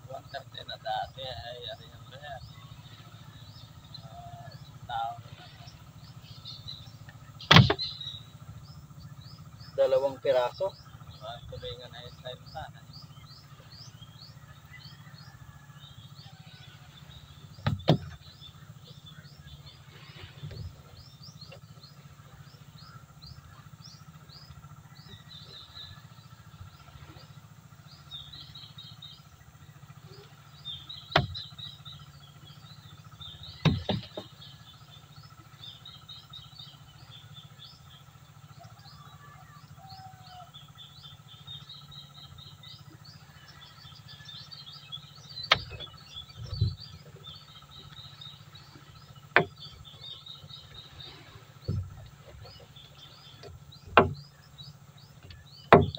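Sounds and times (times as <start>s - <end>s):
small birds chirping: 0.0s - 55.9s
sharp knocks: 7.5s - 7.9s, 17.6s - 18.2s, 31.1s - 31.5s, 33.6s - 34.3s, 49.3s - 49.8s, 51.6s - 52.5s, 53.4s - 54.3s, 55.2s - 55.9s.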